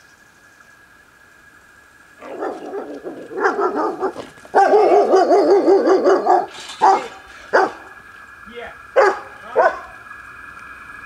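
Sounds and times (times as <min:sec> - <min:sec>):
dog barking: 0:02.2 - 0:07.9, 0:09.0 - 0:09.9
dog whining: 0:02.2 - 0:07.9
dog howling: 0:02.2 - 0:08.0, 0:09.0 - 0:10.0.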